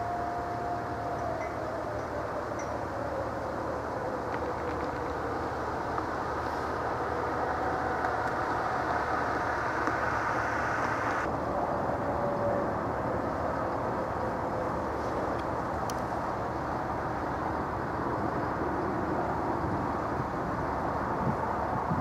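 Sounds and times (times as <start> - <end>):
faint wavering tone: 0.0 - 5.7
distant traffic rumble: 0.0 - 22.0.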